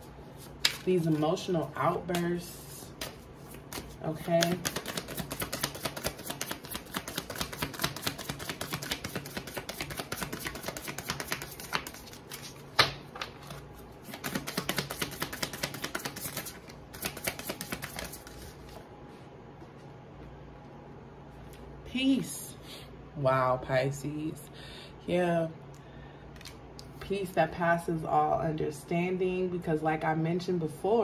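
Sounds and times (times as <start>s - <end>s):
cards being shuffled: 0.4s - 2.3s, 3.0s - 18.8s.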